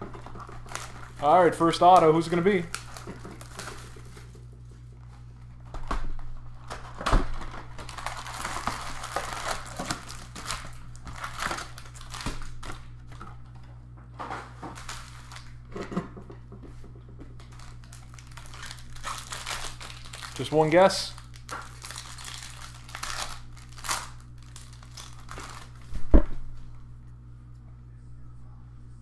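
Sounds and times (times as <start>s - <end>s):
wrappers crinkling: 0.0s - 4.6s, 6.2s - 13.0s, 14.5s - 15.6s, 17.4s - 25.9s
low hum: 21.1s - 29.0s.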